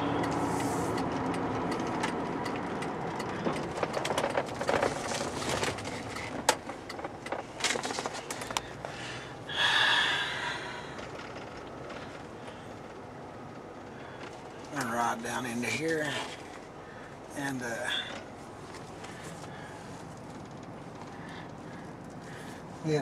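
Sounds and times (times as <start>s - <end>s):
road and engine noise in cab: 0.0s - 23.0s
clicks and rattles: 1.7s - 8.7s.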